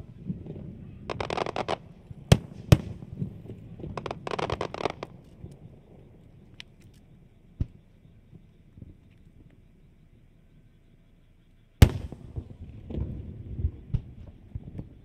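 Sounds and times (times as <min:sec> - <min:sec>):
fireworks bangs: 0:00.0 - 0:05.8, 0:11.8 - 0:15.0
fireworks crackling: 0:00.0 - 0:06.7, 0:11.8 - 0:15.0.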